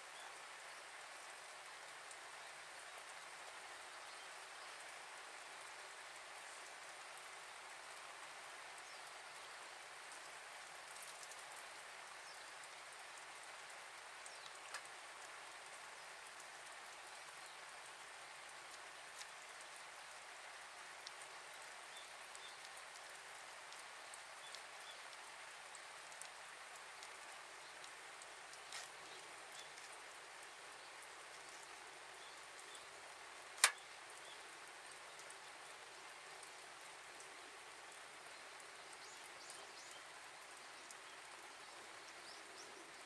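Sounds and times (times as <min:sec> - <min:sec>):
fire popping: 0:33.6 - 0:33.8.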